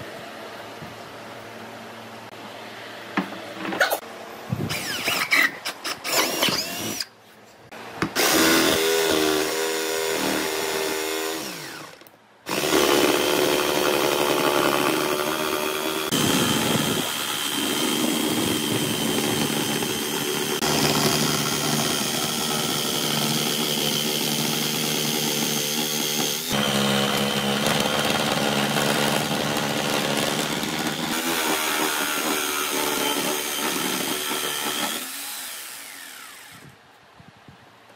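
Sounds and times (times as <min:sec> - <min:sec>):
electric drill boring wood: 0:04.7 - 0:07.1, 0:08.2 - 0:36.8
jigsaw sawing wood: 0:08.2 - 0:36.7.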